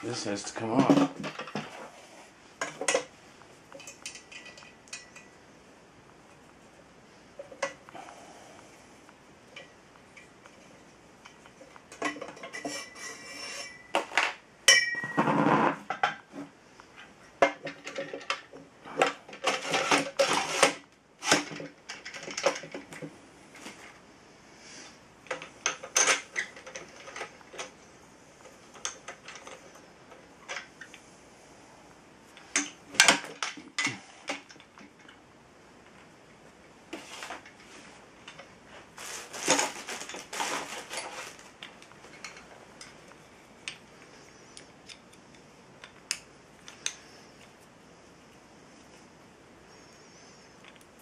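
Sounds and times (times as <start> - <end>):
metal parts clanking and scraping: 3.7 - 5.4, 9.6 - 16.3, 17.0 - 23.0, 25.2 - 31.0, 37.0 - 43.0.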